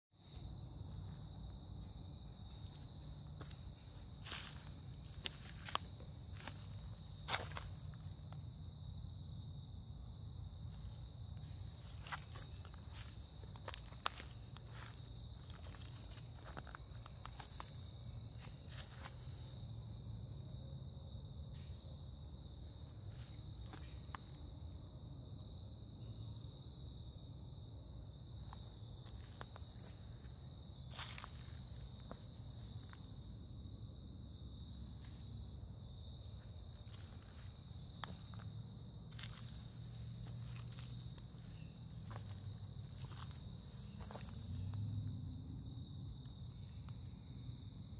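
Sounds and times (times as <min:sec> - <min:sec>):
insects chirring: 0:00.2 - 0:47.9
footsteps on leaf litter: 0:04.2 - 0:08.0, 0:11.8 - 0:19.2, 0:30.9 - 0:31.5, 0:39.1 - 0:44.6.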